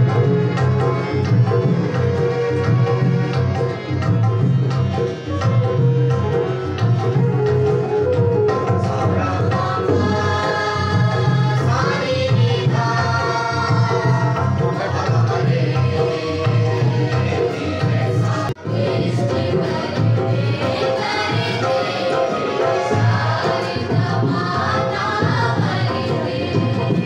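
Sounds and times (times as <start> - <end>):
group of voices singing: 0.0 - 5.8, 8.7 - 27.0
harmonium chords: 0.0 - 7.9
tabla beat: 0.0 - 27.0.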